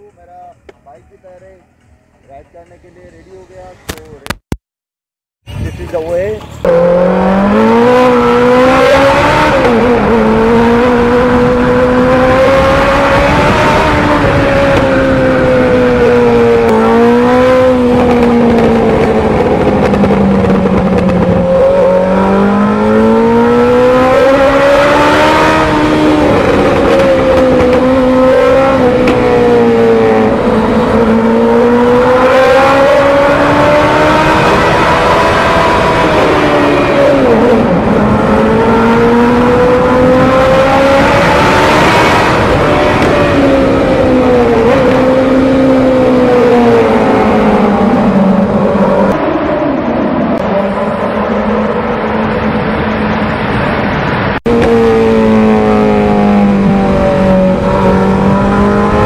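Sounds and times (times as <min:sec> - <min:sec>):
motorcycle engine running: 0:17.7 - 0:23.2.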